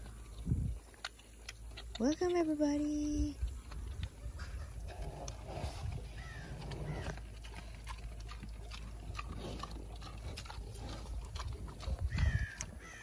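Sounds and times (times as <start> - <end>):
pigs grunting and squeaking: 3.6 - 13.0.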